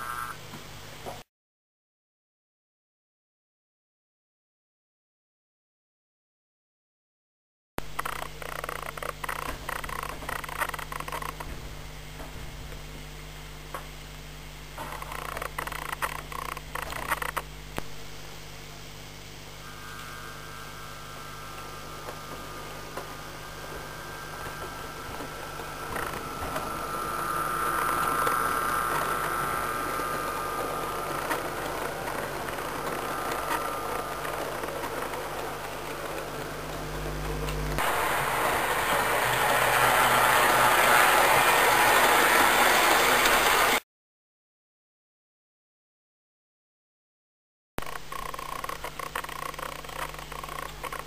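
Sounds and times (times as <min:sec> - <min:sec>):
steady electrical hum: 0:00.0 - 0:01.2, 0:07.8 - 0:43.8
electric motor whine: 0:19.4 - 0:43.8
model train wheels rumbling on track: 0:23.0 - 0:36.8, 0:37.8 - 0:43.8
model train rattling over track: 0:37.8 - 0:43.8.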